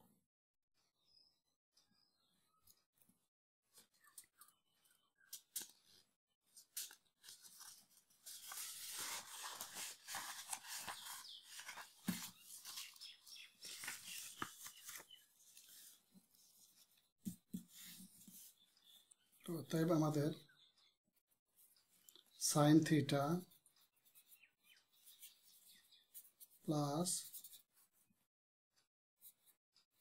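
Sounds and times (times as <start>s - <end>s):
paper rustling and crinkling: 5.3s - 16.8s.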